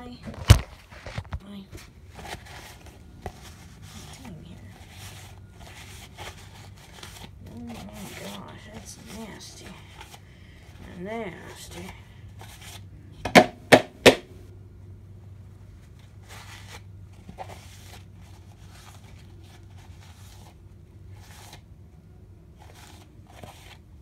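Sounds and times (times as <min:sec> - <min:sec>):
low steady hum: 0:00.0 - 0:24.0
paper towel rustling: 0:00.3 - 0:10.2, 0:15.7 - 0:21.7
sharp loud knocks: 0:13.3 - 0:14.3.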